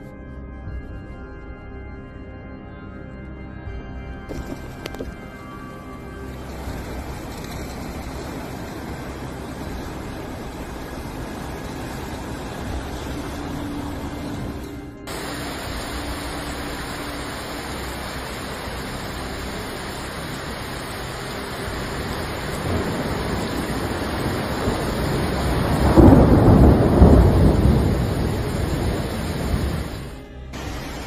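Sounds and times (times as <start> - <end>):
heavy rain: 4.3 - 31.0
wind hissing: 4.3 - 31.0
deep rumbling surge: 6.4 - 31.0.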